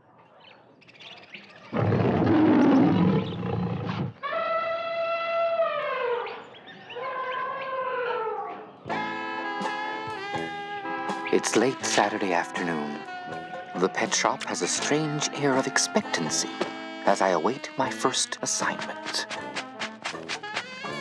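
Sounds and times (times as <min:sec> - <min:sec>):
music with plucked notes: 0:08.9 - 0:21.0.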